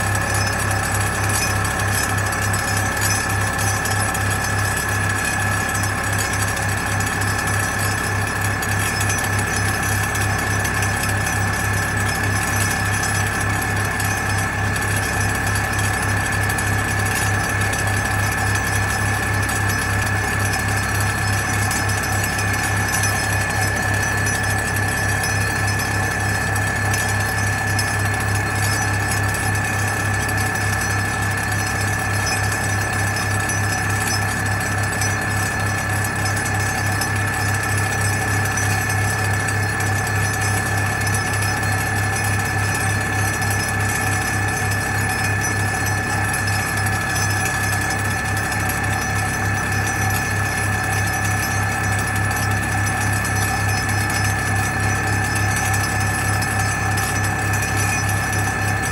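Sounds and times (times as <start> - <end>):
pile-driving hammer drone: 0.0 - 58.9.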